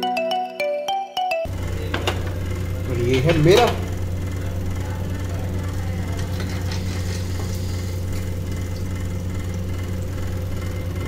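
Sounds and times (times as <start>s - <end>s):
low electrical hum: 1.5s - 11.0s.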